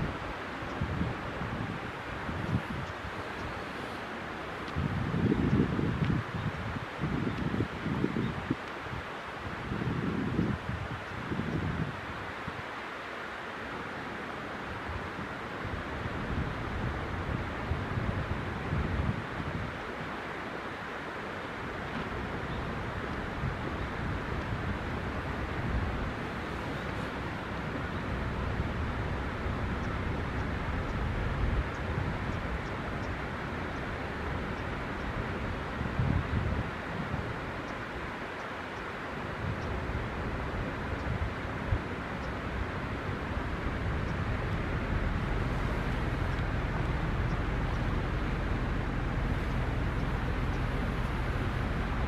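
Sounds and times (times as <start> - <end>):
outdoor rumble and hiss: 0.0 - 52.0
low rumble: 42.4 - 52.0.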